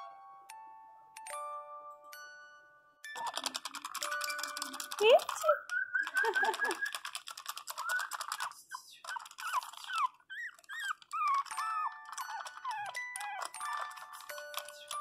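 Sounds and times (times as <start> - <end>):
puppy whining: 3.1 - 15.0
rapid clicking: 3.1 - 15.0.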